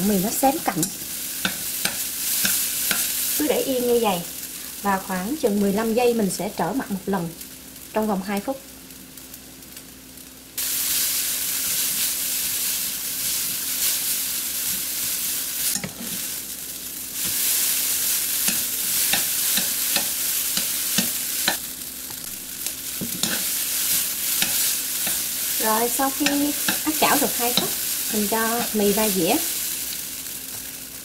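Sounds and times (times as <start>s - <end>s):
noodles sizzling in hot oil: 0.0s - 31.0s
spatula and chopsticks clicking: 0.7s - 3.1s, 18.4s - 21.6s, 24.4s - 25.3s, 26.1s - 28.8s.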